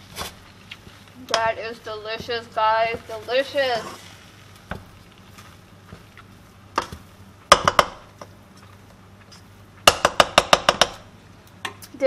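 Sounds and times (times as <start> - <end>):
utensils knocking against pan: 6.8 - 8.0.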